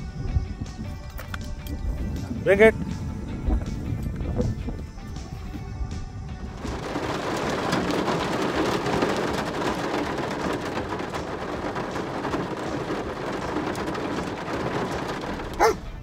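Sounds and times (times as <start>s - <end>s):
heavy rain on car roof: 6.3s - 16.0s.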